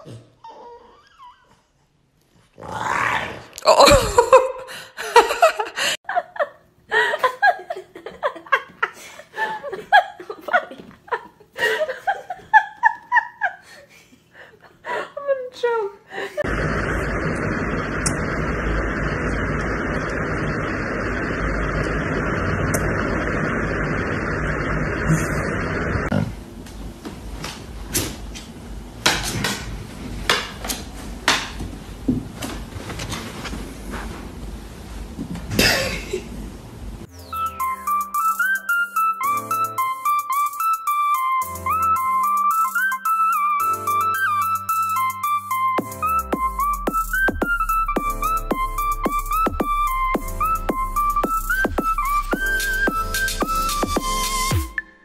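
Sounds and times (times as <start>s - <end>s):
person laughing: 3.6s - 15.2s, 25.0s - 25.6s.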